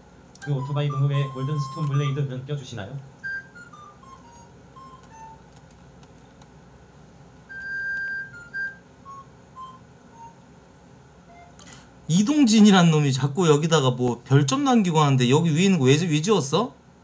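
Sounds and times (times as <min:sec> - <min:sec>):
whistle-like melody: 0:00.4 - 0:02.3, 0:03.2 - 0:05.4, 0:07.5 - 0:10.4, 0:11.3 - 0:11.6.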